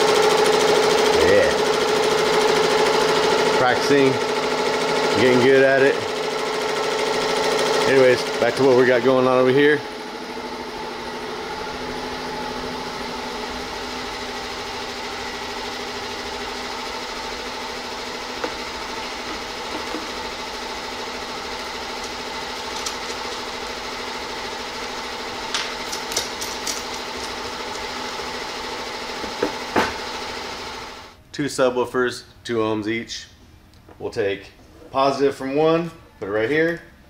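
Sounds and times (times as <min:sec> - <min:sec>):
motor droning: 0:06.1 - 0:25.5.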